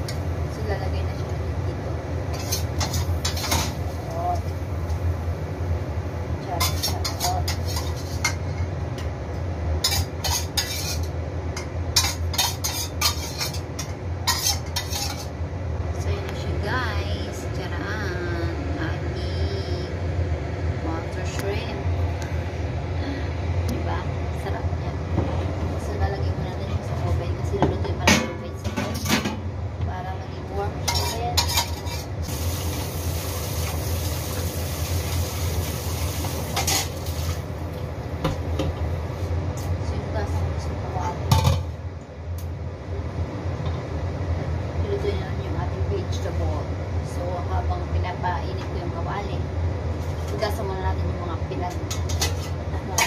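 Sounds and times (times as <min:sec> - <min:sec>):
steady low hum: 0:00.0 - 0:53.0
metal utensils clinking on dishes: 0:30.9 - 0:32.1
vegetables sizzling in a pan: 0:32.2 - 0:37.6.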